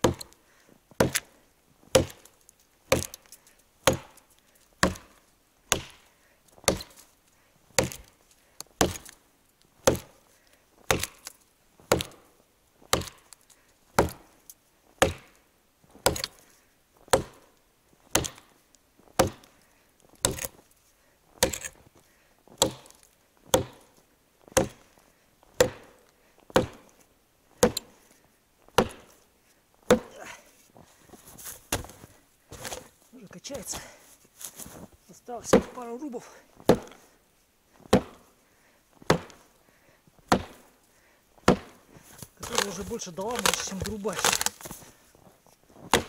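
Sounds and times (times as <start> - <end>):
axe chopping log: 0.0 - 0.4, 1.0 - 1.3, 1.9 - 4.2, 4.8 - 6.0, 6.6 - 7.0, 7.8 - 8.1, 8.8 - 9.2, 9.8 - 10.2, 10.9 - 12.3, 12.9 - 13.3, 14.0 - 14.3, 15.0 - 15.4, 16.0 - 16.4, 17.1 - 17.5, 18.1 - 18.5, 19.2 - 19.5, 20.2 - 20.6, 21.4 - 21.8, 22.6 - 24.8, 25.6 - 27.0, 27.6 - 28.0, 28.7 - 29.2, 29.9 - 30.3, 31.7 - 32.9, 35.5 - 35.9, 36.6 - 37.0, 37.9 - 38.3, 39.0 - 39.5, 40.3 - 40.7, 41.4 - 44.8
faint rustling: 27.9 - 35.3.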